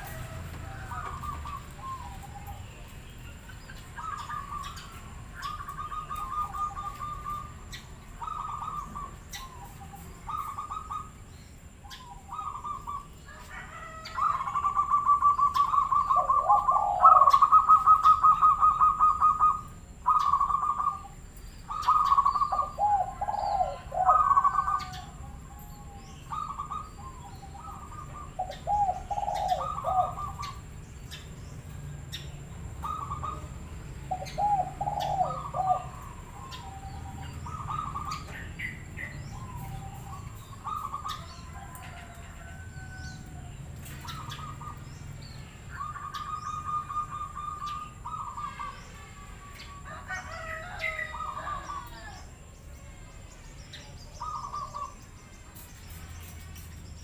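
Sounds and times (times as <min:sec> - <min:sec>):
dove cooing with trilled notes: 0:00.0 - 0:02.8, 0:03.8 - 0:11.2, 0:11.9 - 0:30.8, 0:32.8 - 0:43.0, 0:43.9 - 0:44.9, 0:45.7 - 0:48.8.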